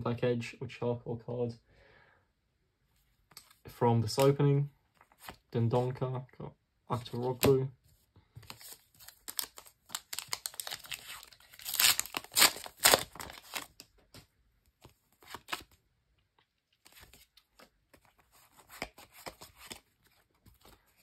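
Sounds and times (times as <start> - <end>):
cards rustling and clicking: 7.0 - 7.6, 8.4 - 15.8, 16.7 - 21.0
plastic wrapper tearing and crinkling: 8.5 - 13.9, 15.2 - 15.8.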